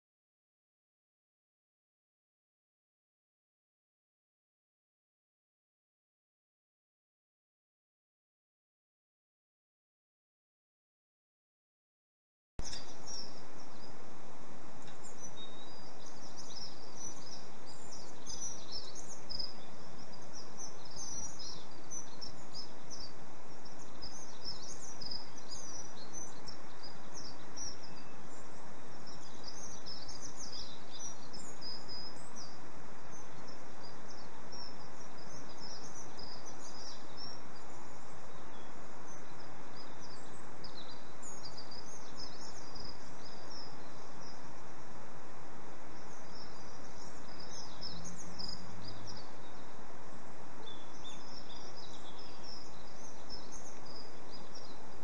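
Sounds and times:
small songbirds chirping: 12.6 - 55.0
steady background hiss: 12.6 - 55.0.

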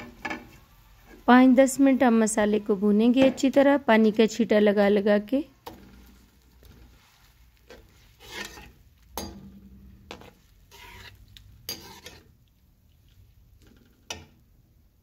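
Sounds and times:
food frying in oil: 5.5 - 14.6
metal spoon scraping pan: 5.6 - 12.5.

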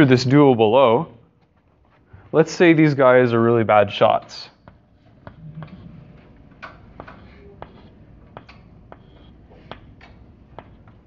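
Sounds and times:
chalk tapping and scratching: 6.8 - 9.9.

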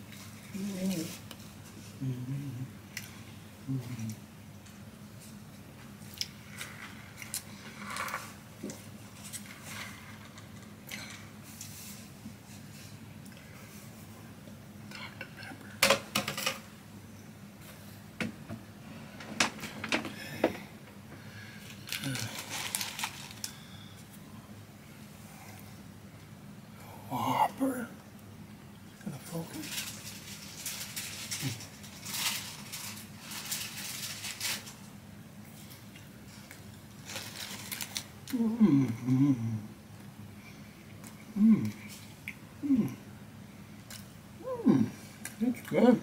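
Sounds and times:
low steady hum: 0.0 - 46.0
person chewing: 6.0 - 9.7
paper wrapper crinkling: 21.6 - 23.6, 29.5 - 34.9, 36.9 - 38.2.

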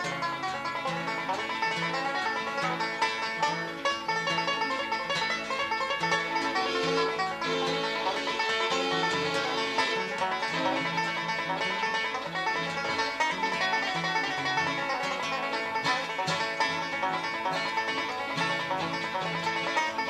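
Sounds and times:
banjo-led bluegrass instrumental: 0.0 - 20.0.

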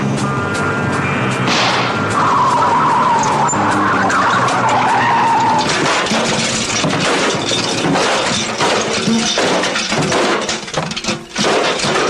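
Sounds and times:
car tyres squealing: 0.6 - 8.6
rough scraping with knocks: 2.2 - 12.0.

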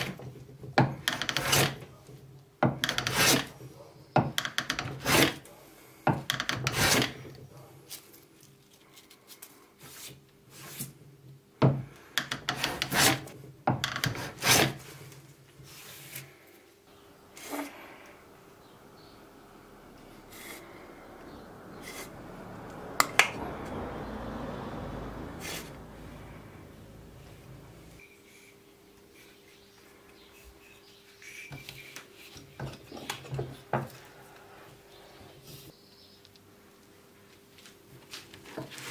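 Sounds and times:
hand scraping wood: 0.9 - 2.0, 2.8 - 3.6, 4.4 - 5.4, 6.1 - 7.7, 12.2 - 16.5, 17.3 - 18.2, 20.0 - 22.2, 25.3 - 25.9.

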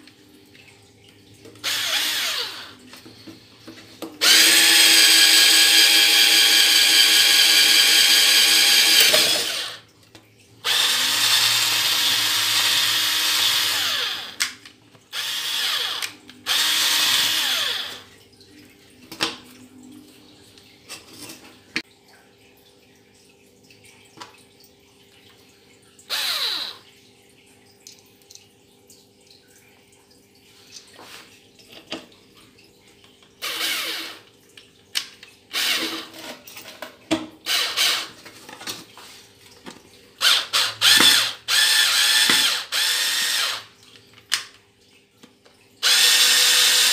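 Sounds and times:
cordless drill drilling wood: 1.6 - 2.8, 4.2 - 9.8, 10.6 - 14.5, 15.1 - 18.1, 26.1 - 26.8, 33.4 - 34.2, 35.5 - 36.1, 37.4 - 38.1, 40.2 - 43.7, 45.8 - 46.9.

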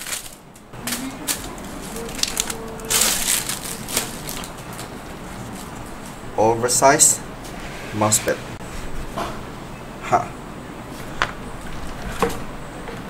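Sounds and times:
plastic wrapping crinkling: 0.0 - 6.3.

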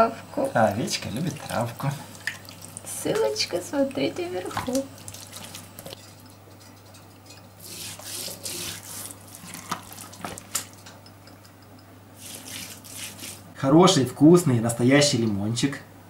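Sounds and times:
oily hands smearing fish skin: 7.6 - 10.7, 12.2 - 13.5.

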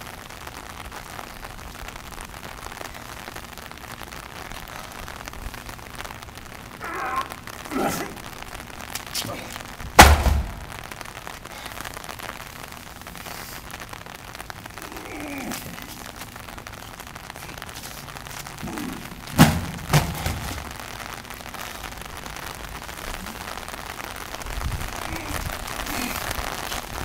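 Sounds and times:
heavy tire thud on concrete: 10.0 - 10.7, 19.3 - 20.6.

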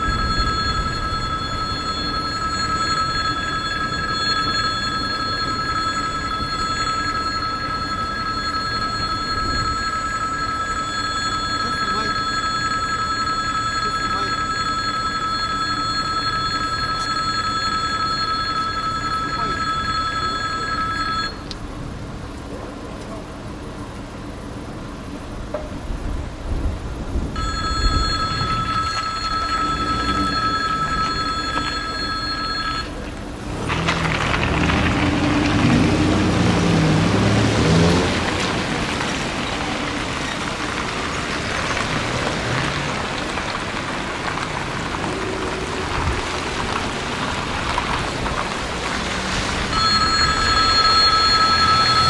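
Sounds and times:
electric warning bell ringing: 0.0 - 21.6, 27.3 - 33.4, 49.6 - 52.0
car engines: 0.0 - 52.0
tyres hissing on wet road: 33.4 - 49.7.

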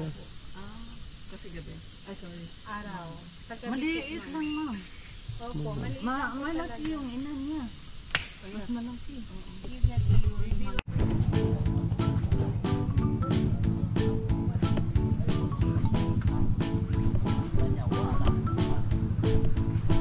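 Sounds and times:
insects droning: 0.0 - 20.0
faint voices talking: 8.5 - 20.0
low rumble: 10.9 - 20.0.

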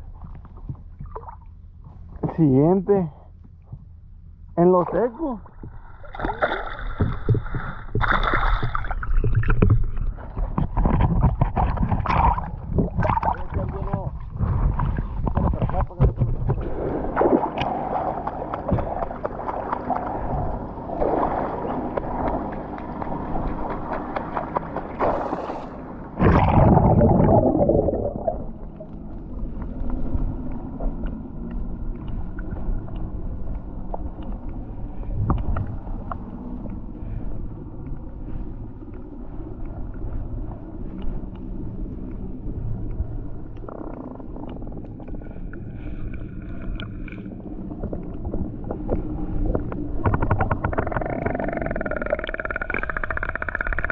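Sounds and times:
muffled underwater sound: 0.0 - 53.9
water splashing: 4.9 - 31.1, 43.6 - 53.9
loud plunge into water: 25.0 - 28.5.

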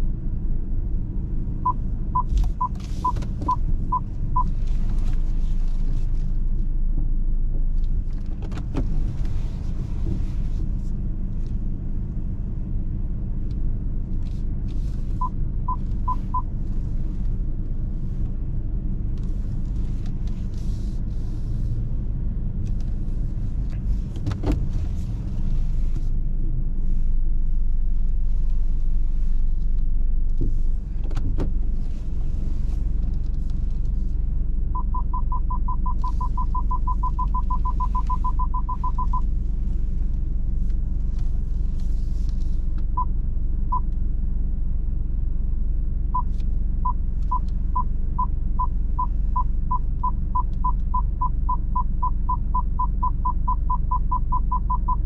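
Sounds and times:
car engine and tyres rumbling: 0.0 - 55.0
parking sensor beeps: 1.6 - 4.5, 34.8 - 39.3, 46.2 - 55.0.

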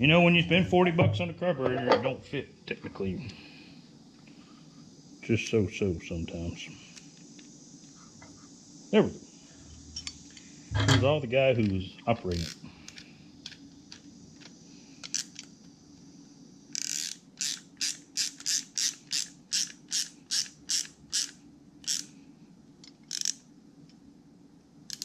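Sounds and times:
low steady hum: 0.0 - 16.8
ratcheting wrench clicking: 15.0 - 15.5, 16.7 - 22.1, 22.8 - 23.4.

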